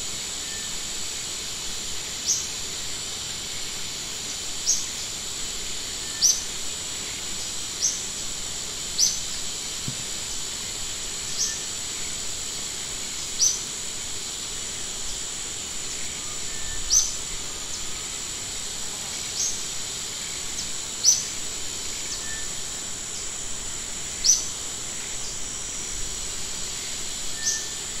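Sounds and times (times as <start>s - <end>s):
steady high hiss: 0.0s - 28.0s
small bird chirping: 16.5s - 17.9s, 27.4s - 27.8s.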